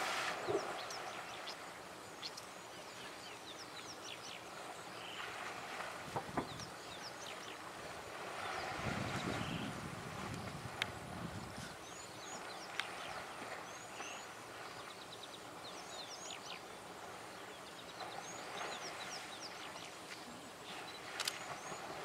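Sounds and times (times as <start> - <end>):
elephants splashing in water: 0.0 - 1.8, 4.5 - 11.3, 16.8 - 22.0
birds chirping: 0.4 - 5.4, 6.4 - 7.7, 8.3 - 9.8, 11.5 - 22.0.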